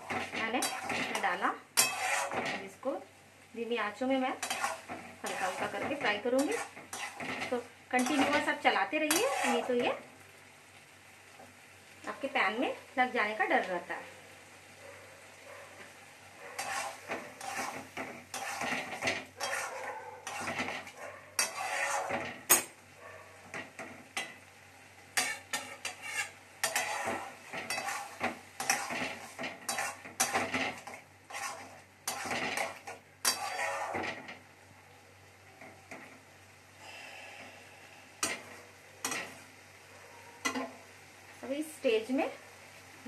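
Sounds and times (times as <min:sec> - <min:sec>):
metal spatula scraping a pan: 0:00.0 - 0:02.8, 0:04.3 - 0:10.0, 0:16.5 - 0:22.8, 0:25.1 - 0:34.4, 0:38.2 - 0:39.5, 0:40.4 - 0:40.8.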